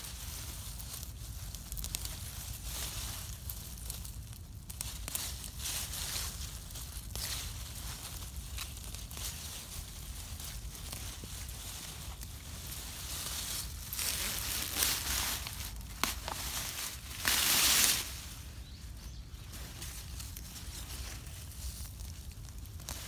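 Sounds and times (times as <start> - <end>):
vines and leaves rustling and tearing: 0.0 - 23.0.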